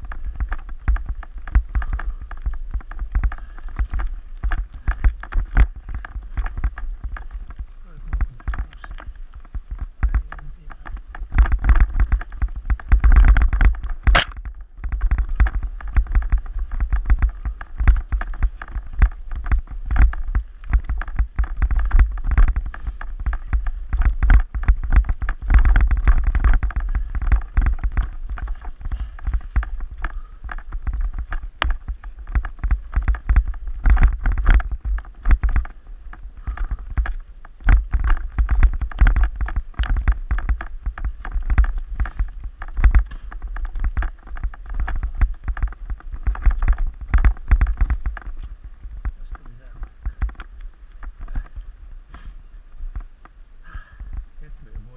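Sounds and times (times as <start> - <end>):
bike rattling and knocking: 0.0 - 54.9
wind rumble on microphone: 0.0 - 54.9
sharp click: 14.1 - 14.4.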